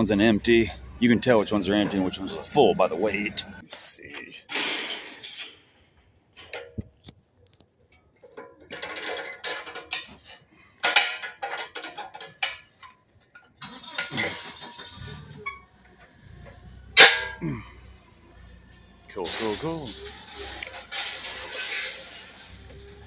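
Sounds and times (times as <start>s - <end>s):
metallic clinks and rattles: 7.9s - 17.6s, 19.3s - 23.0s.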